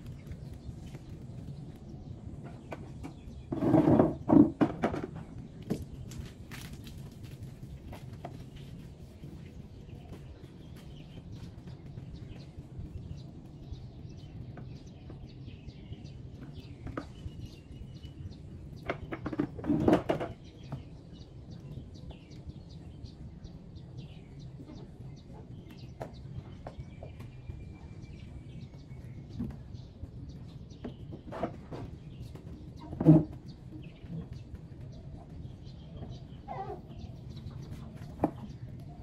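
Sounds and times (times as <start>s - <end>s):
birds chirping: 0.0s - 39.0s
low background hum: 0.0s - 39.0s
knocks and clatter: 2.4s - 7.2s, 18.8s - 20.9s.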